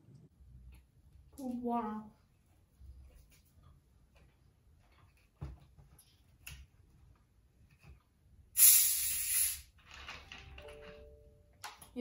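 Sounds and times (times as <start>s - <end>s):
bottle hissing carbonation: 8.6s - 9.7s.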